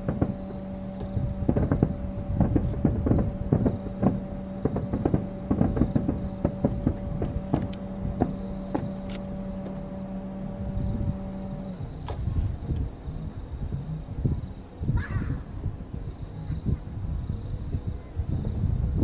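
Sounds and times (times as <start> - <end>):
fireworks bursting: 0.0 - 13.0
steady hum: 0.0 - 19.0.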